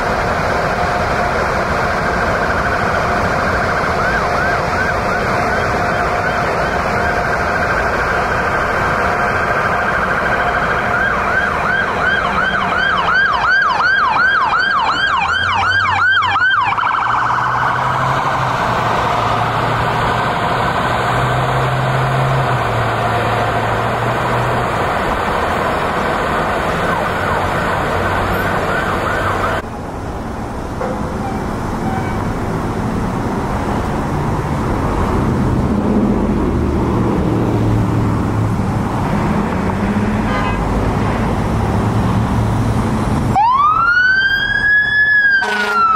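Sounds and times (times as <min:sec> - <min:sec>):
ambulance siren wailing and yelping: 0:02.0 - 0:18.3, 0:26.6 - 0:29.6, 0:43.3 - 0:45.9.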